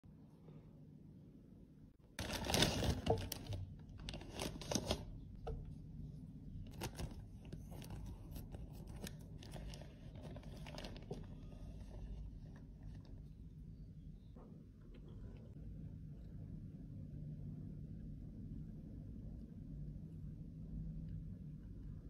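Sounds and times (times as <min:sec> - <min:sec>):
plastic bag crinkling: 0:02.2 - 0:05.1, 0:06.7 - 0:12.1.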